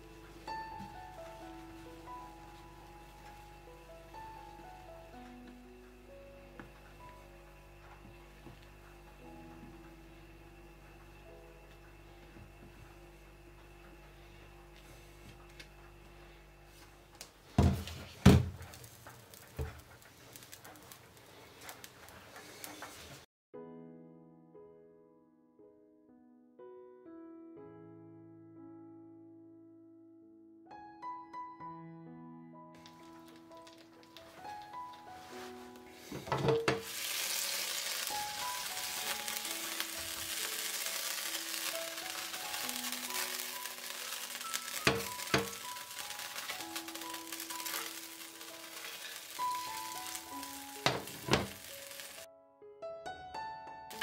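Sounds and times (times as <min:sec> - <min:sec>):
soft slow background music: 0:00.0 - 0:54.0
butter crackling in pan: 0:17.7 - 0:23.2, 0:32.8 - 0:52.3.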